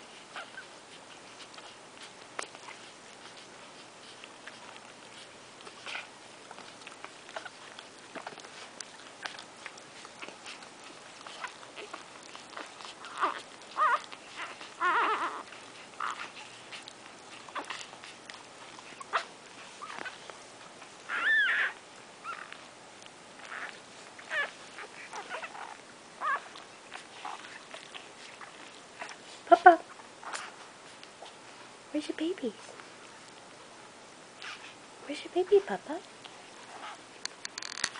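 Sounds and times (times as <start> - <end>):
puppies squeaking and whimpering: 0.0 - 22.7, 23.4 - 31.4, 34.4 - 34.8, 36.2 - 37.9
puppies suckling clicks: 0.0 - 34.9, 35.5 - 37.9
puppy squealing: 11.2 - 16.8, 21.1 - 22.6, 23.4 - 26.6.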